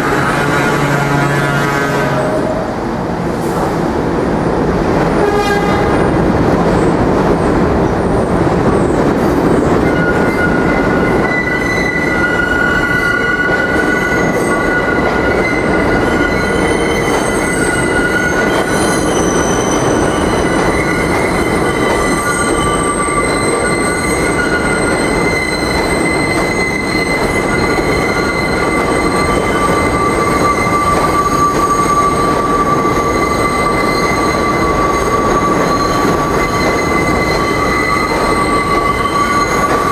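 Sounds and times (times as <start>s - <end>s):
rumble of wheels on rail: 0.0s - 39.9s
train wheels squealing: 9.5s - 39.9s.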